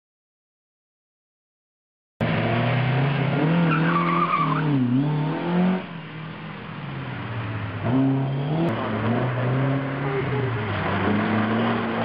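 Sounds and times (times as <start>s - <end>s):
rally car engine revving: 2.2s - 5.9s, 7.6s - 12.0s
tyre squeal: 3.6s - 4.7s.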